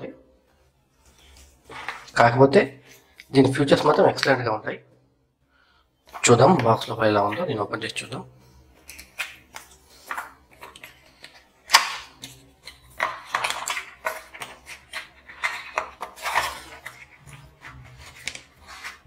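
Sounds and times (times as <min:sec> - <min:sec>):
cardboard scraping and rustling: 0:13.7 - 0:19.0.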